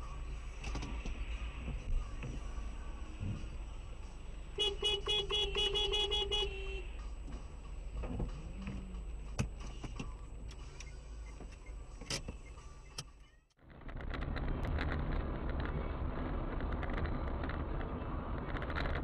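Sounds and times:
car and road rumble: 0:00.0 - 0:19.0
car horn short blasts: 0:04.6 - 0:07.0.

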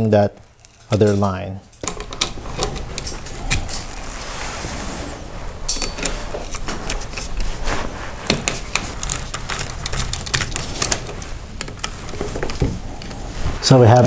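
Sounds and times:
metal and wire clicks and scrapes: 0:00.6 - 0:04.4, 0:05.6 - 0:14.0.

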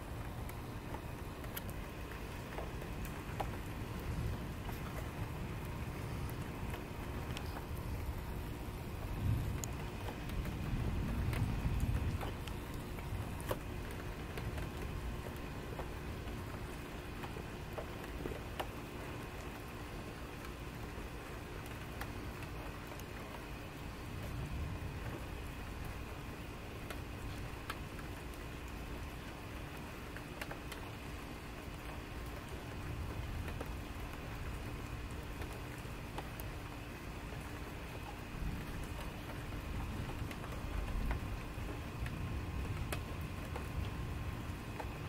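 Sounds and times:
steady rain falling: 0:00.0 - 0:45.0
distant thunder rumbles: 0:02.6 - 0:16.8.

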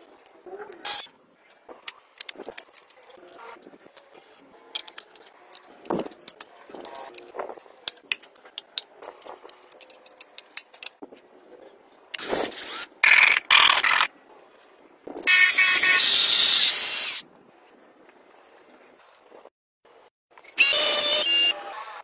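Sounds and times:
electric drill whirring: 0:15.3 - 0:17.2, 0:20.6 - 0:21.5.

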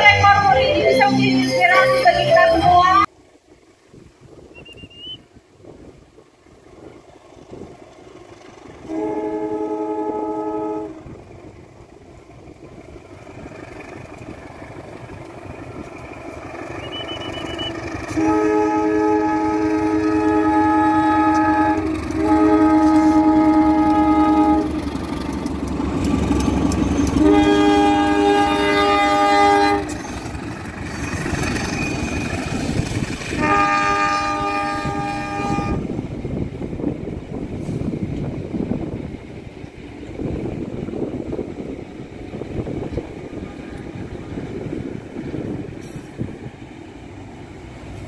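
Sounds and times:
train engines and wheels rumbling: 0:00.0 - 0:48.0
train air horn blasts: 0:08.8 - 0:11.2, 0:16.8 - 0:24.8, 0:27.0 - 0:30.0, 0:33.4 - 0:36.0.

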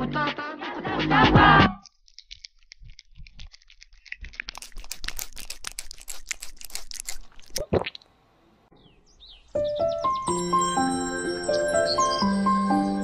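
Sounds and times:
rabbit nibbling honeycomb: 0:01.8 - 0:07.6.

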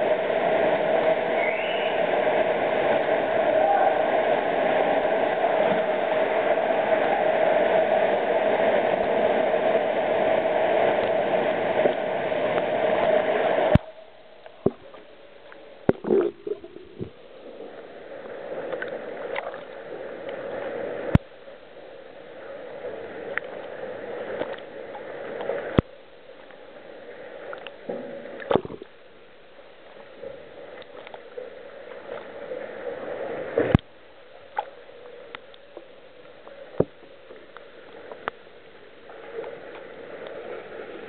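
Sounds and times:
loud rushing water: 0:00.0 - 0:21.2
water splashing and gurgling: 0:00.0 - 0:41.0.

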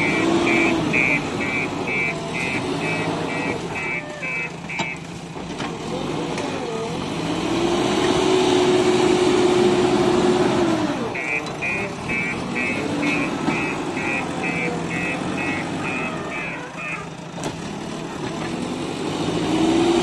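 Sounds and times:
reversing alarm beeping: 0:00.0 - 0:05.0, 0:11.2 - 0:17.0
diesel engine revving: 0:00.0 - 0:20.0.

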